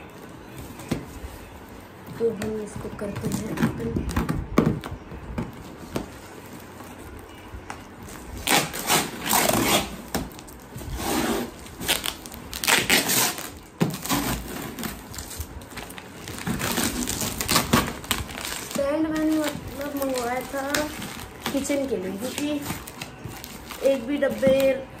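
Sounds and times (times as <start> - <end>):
packing tape ripping: 8.1 - 24.6.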